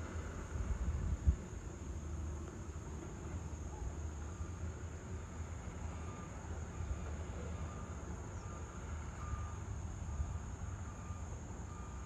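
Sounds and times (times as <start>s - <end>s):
distant traffic rumble: 0.0s - 12.0s
insect drone: 0.0s - 12.0s
faint short beeping tones: 7.6s - 9.6s.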